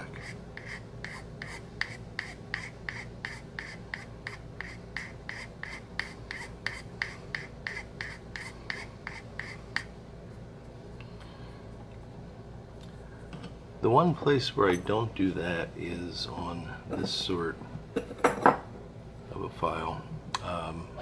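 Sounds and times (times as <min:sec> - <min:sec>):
metal file rasping on wood: 0:00.2 - 0:09.9.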